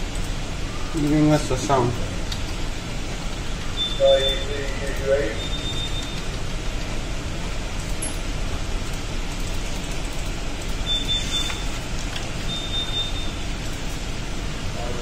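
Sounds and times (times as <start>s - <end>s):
steady background noise: 0.0s - 15.0s
high-pitched alarm beeps: 3.8s - 6.2s, 10.8s - 11.7s, 12.4s - 13.4s.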